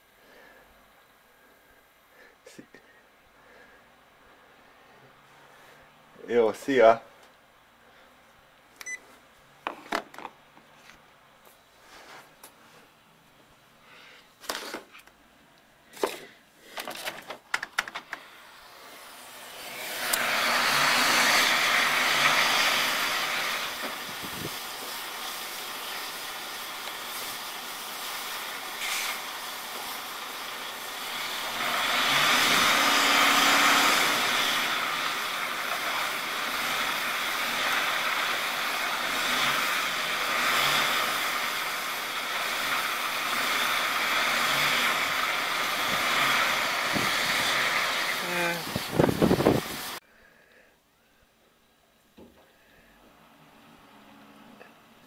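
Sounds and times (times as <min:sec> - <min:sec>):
wheels spinning on ice hissing: 0:18.2 - 0:50.0
truck engine revving: 0:19.6 - 0:26.5, 0:29.2 - 0:50.0.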